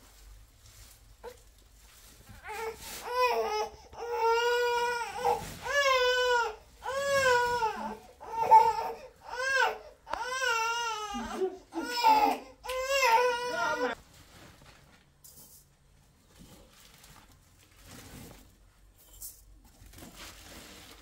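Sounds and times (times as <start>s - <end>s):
infant crying: 2.4s - 14.0s.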